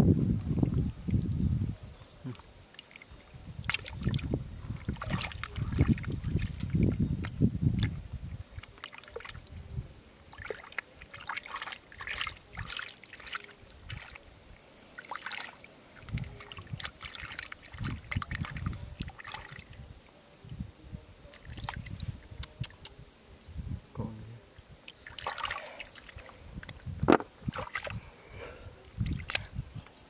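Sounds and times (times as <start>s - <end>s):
small splashes and drips: 2.3s - 9.6s, 10.3s - 14.2s, 15.0s - 19.8s, 21.3s - 22.9s, 24.8s - 26.9s, 27.5s - 28.0s, 28.8s - 30.0s
hands squelching in wet mud: 2.7s - 8.0s, 10.3s - 14.2s, 15.0s - 19.7s, 24.9s - 26.9s, 27.5s - 28.0s, 28.9s - 29.5s.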